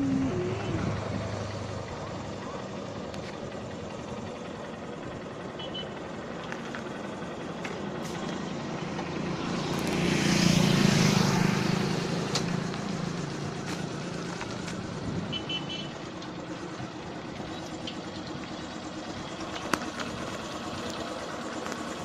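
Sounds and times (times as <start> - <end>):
motorcycle passing by: 0.0 - 3.2, 7.4 - 16.2
distant traffic rumble: 0.0 - 22.0.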